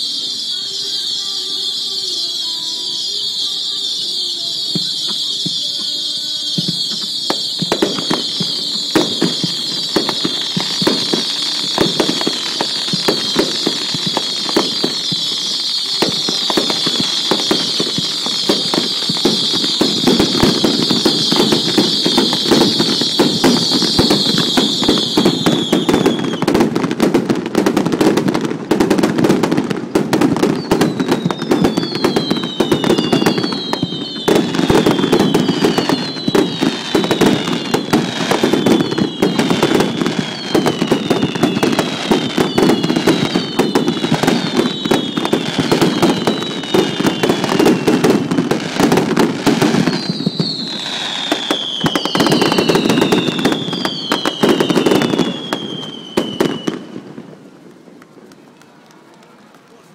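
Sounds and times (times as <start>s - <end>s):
falling firework whistles: 0.0s - 57.7s
fireworks crackling: 0.0s - 59.9s.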